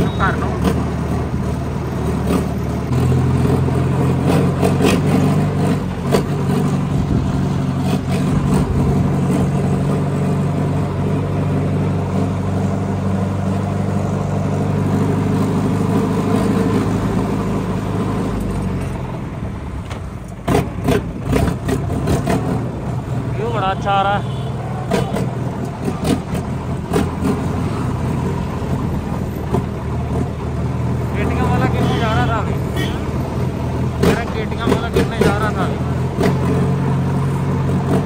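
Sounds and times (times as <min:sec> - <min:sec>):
tractor diesel engine running: 0:00.0 - 0:38.0.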